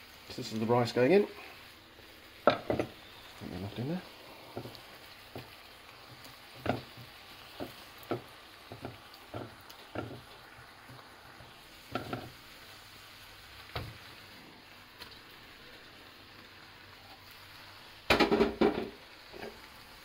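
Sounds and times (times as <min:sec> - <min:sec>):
food sizzling in a frying pan: 0:00.0 - 0:20.0.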